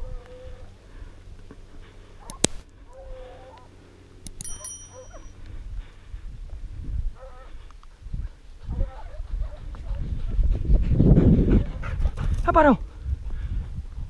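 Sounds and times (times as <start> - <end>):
sharp click: 2.3 - 2.6, 4.2 - 4.6
steady low rumble: 3.6 - 14.0
short metallic ping: 4.4 - 5.3
dogs baying: 4.6 - 5.3.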